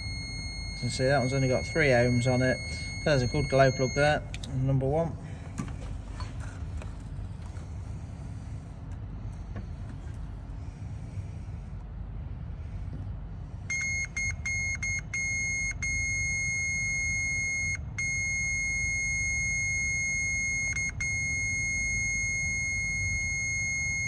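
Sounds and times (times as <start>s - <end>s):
multimeter continuity beeps: 0.0s - 4.3s, 13.7s - 24.0s.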